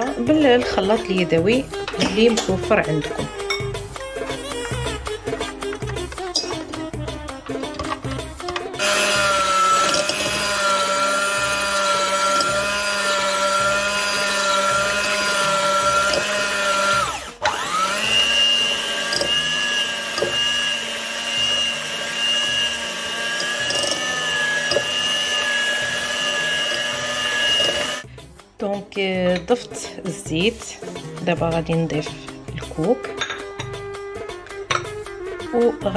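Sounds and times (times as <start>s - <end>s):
electric mixer beating eggs: 8.8s - 28.1s.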